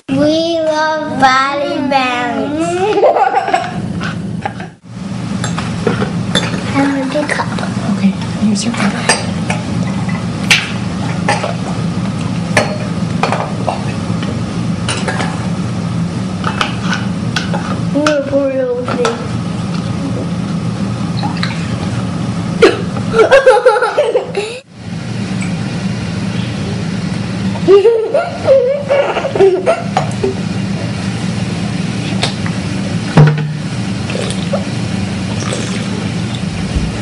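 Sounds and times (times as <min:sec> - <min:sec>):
steady low hum: 0:00.0 - 0:37.0
drink being poured: 0:35.3 - 0:36.5.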